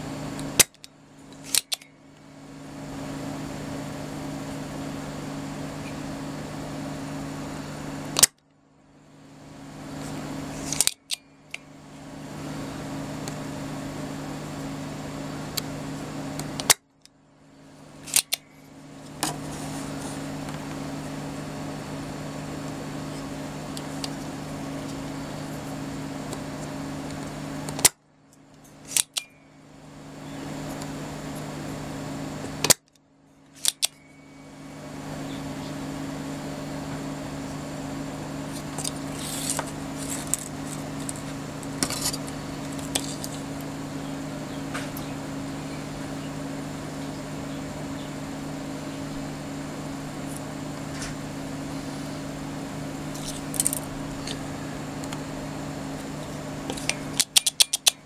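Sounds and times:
steady low hum: 0:00.0 - 0:58.0
desoldering pump snapping: 0:00.4 - 0:01.9, 0:08.2 - 0:08.4, 0:10.6 - 0:11.6, 0:16.3 - 0:17.1, 0:18.0 - 0:19.4, 0:26.3 - 0:29.3, 0:32.5 - 0:34.0, 0:38.5 - 0:43.7, 0:53.1 - 0:55.3, 0:56.0 - 0:58.0
plunger latching clicks: 0:33.6 - 0:34.0, 0:56.7 - 0:58.0.

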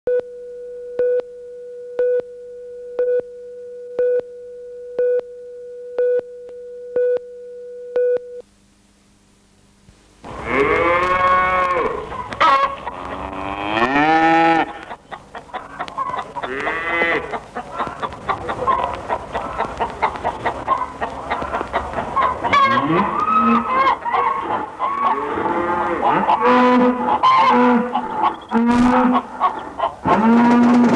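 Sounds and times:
short beeps: 0:00.1 - 0:08.4
farm animals calling: 0:10.3 - 0:30.9.

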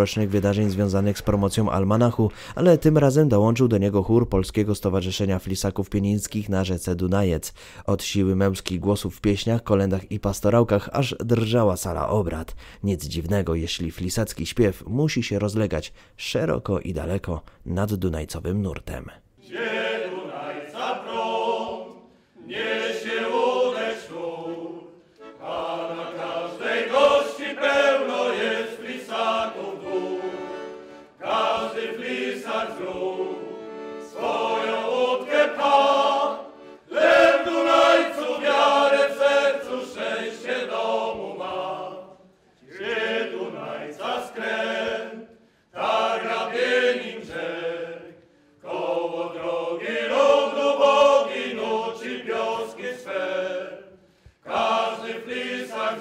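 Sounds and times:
men's choir singing: 0:19.4 - 0:56.0.

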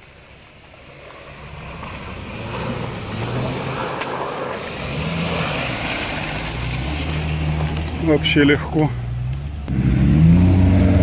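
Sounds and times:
water splashing off wheels: 0:00.0 - 0:09.7
car engine running: 0:00.0 - 0:11.0.

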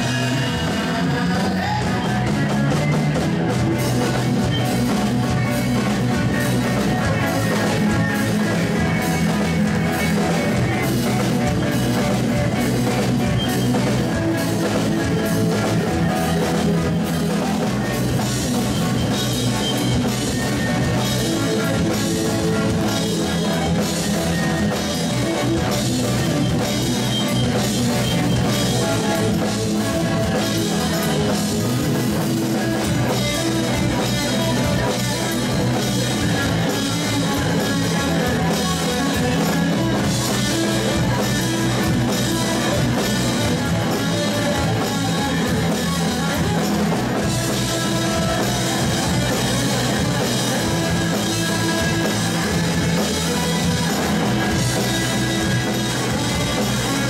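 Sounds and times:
bass guitar: 0:00.0 - 0:57.0
drum kit with cymbals: 0:00.0 - 0:57.0
electric guitar: 0:00.0 - 0:57.0.

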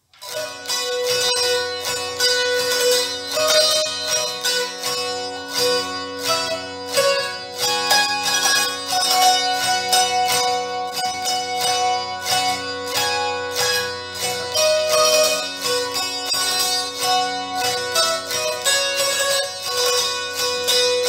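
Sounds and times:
zither strummed with plectrum: 0:00.0 - 0:21.0.

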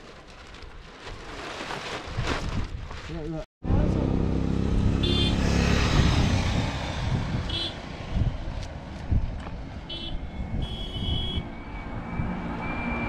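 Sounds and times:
wind and road noise rumble: 0:00.0 - 0:13.0
motorcycle passing: 0:03.7 - 0:13.0.

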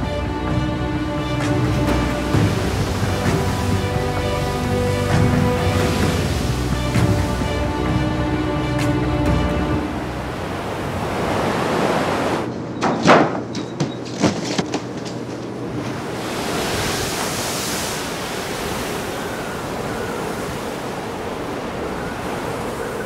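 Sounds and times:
rough sea water washing: 0:00.0 - 0:12.5, 0:14.4 - 0:23.0
wind: 0:00.0 - 0:23.0
sharp knocks and slaps: 0:12.6 - 0:15.2.

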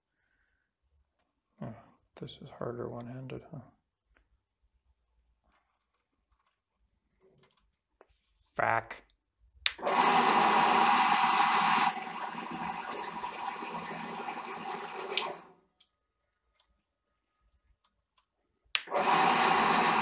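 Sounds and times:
drill press motor running: 0:09.7 - 0:15.5, 0:18.8 - 0:20.0.

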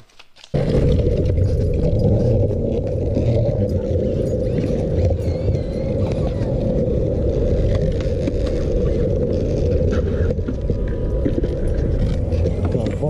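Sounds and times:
skateboard wheels on concrete: 0:00.0 - 0:13.0.

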